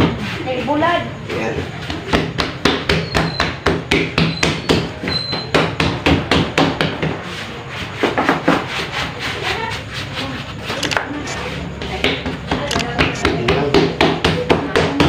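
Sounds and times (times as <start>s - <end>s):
steady low hum: 5.7s - 15.0s.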